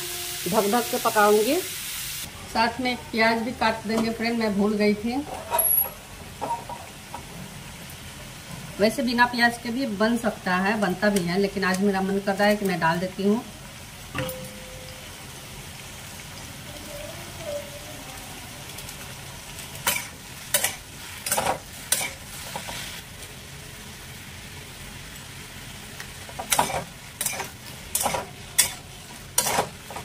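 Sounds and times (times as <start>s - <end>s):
vegetables sizzling in oil: 0.0s - 30.0s
spatula scraping a pan: 26.4s - 30.0s.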